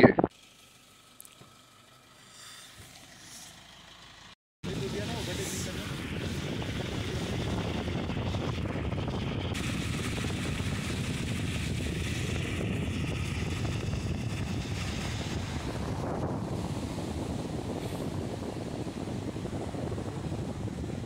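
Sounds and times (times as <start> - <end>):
car driving rumble inside car: 4.9 - 21.0.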